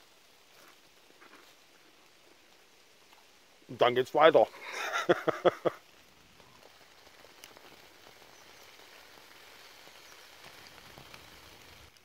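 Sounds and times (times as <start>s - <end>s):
light rain patter: 0.0s - 12.0s
man laughing: 4.5s - 5.8s.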